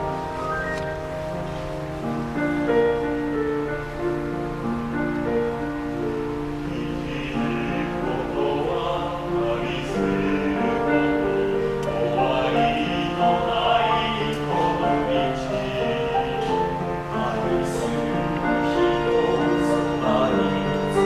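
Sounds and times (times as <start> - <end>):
male vocal ensemble singing in harmony: 6.7 - 21.0.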